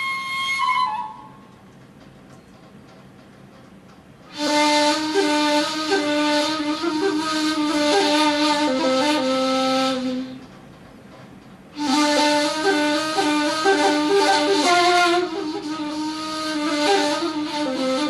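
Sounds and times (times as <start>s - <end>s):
breathy flute playing: 0.0s - 1.6s, 4.3s - 10.5s, 11.8s - 18.0s.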